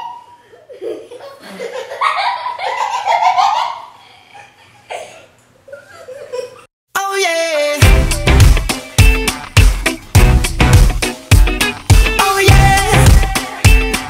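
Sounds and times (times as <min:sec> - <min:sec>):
children laughing and giggling: 0:00.0 - 0:06.7
music: 0:07.0 - 0:14.0.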